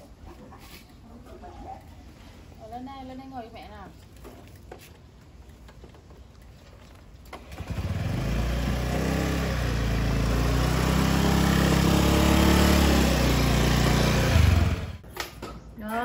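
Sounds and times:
scooter engine running: 7.3s - 15.0s.

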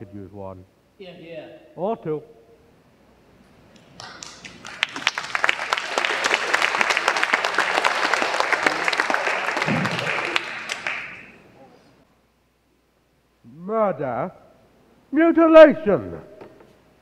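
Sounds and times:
audience applauding: 3.8s - 11.5s.

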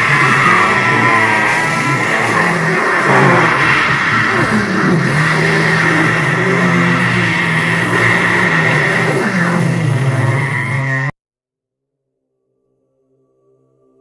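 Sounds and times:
loud droning hum: 0.0s - 11.2s.

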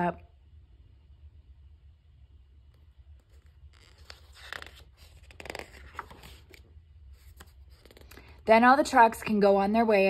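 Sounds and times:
low steady hum: 0.0s - 10.0s
paper page rustling and sliding: 3.2s - 8.2s.

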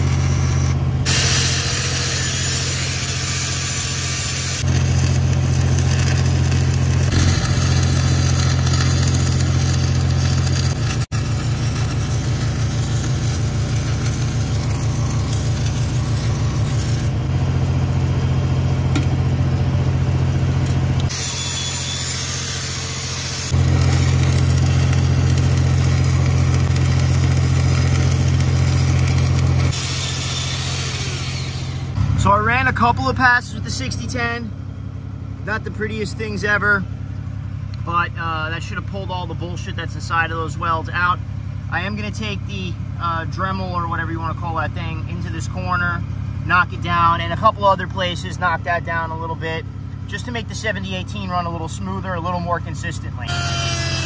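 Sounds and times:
welding arc crackling hiss: 0.0s - 17.1s, 21.1s - 32.0s, 53.3s - 54.0s
welding machine hum: 0.0s - 32.1s, 53.3s - 54.0s.

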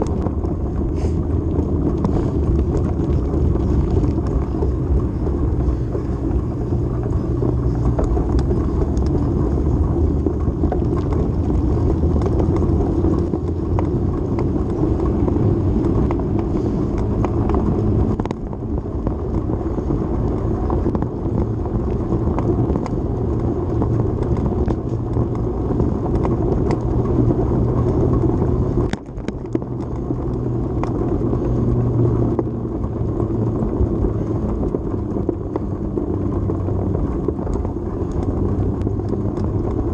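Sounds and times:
bicycle tyre road noise: 0.0s - 39.9s
small clicks and rattles: 0.0s - 39.9s
wind noise: 0.0s - 39.9s.

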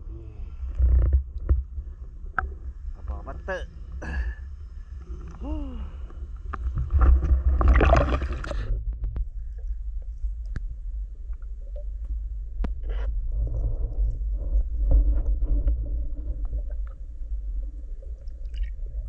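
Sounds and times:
muffled underwater rumble: 0.0s - 19.0s
water splashing and gurgling: 5.1s - 8.7s, 12.9s - 19.0s
sharp underwater clicks: 18.4s - 18.8s.

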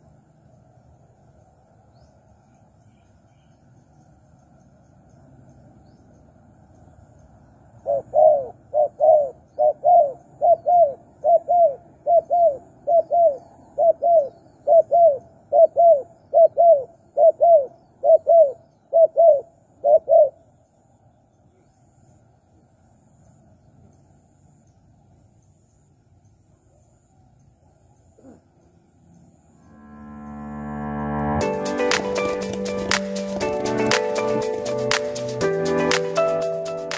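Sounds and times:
dove cooing: 7.8s - 20.4s.

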